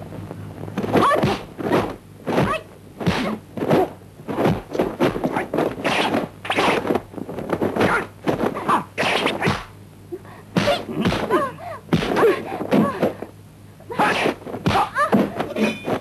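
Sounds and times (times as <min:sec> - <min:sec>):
faint low hum: 0:00.0 - 0:16.0.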